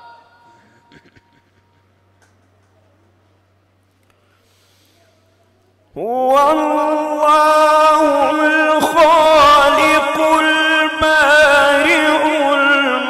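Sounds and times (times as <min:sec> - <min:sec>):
man reciting melodically: 0:05.9 - 0:13.0.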